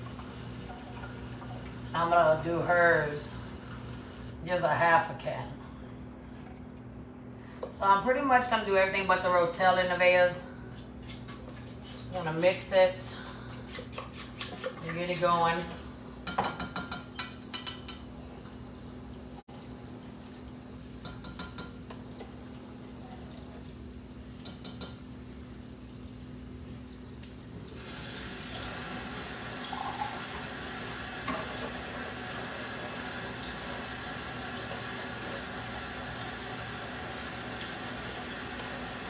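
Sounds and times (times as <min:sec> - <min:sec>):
tap water running: 0:00.0 - 0:02.2, 0:20.0 - 0:39.0
low steady hum: 0:00.0 - 0:39.0.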